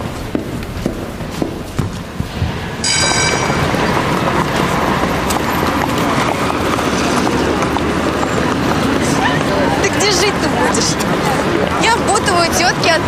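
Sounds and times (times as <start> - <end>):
footsteps on hard floor: 0.0 - 2.6
footsteps on pavement: 0.0 - 13.0
traffic: 0.0 - 13.0
crowd hubbub: 2.4 - 13.0
short high tone: 2.8 - 4.4.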